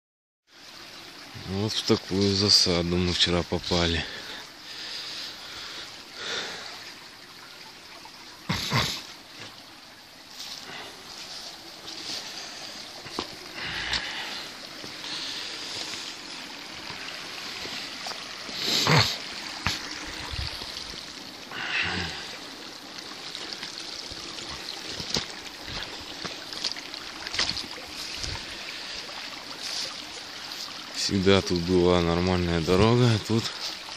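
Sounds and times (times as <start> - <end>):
water trickling: 0.5 - 33.9
footsteps on wet ground: 10.3 - 21.0, 23.6 - 28.5.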